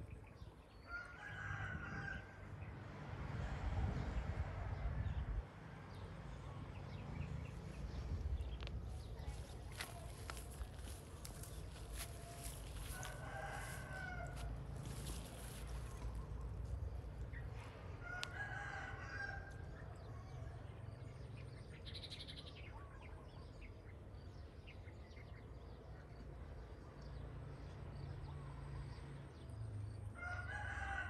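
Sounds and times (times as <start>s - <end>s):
rooster crowing: 12.8s - 14.5s.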